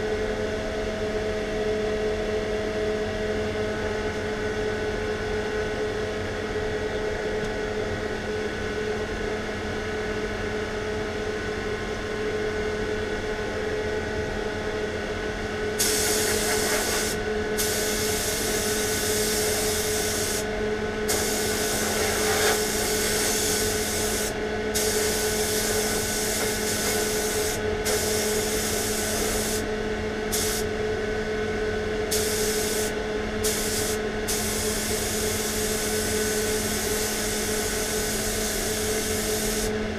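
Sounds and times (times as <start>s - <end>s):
low machine hum: 0.0s - 39.9s
paint spray gun hissing: 15.8s - 20.4s, 21.1s - 29.6s, 30.3s - 30.6s, 32.1s - 39.7s.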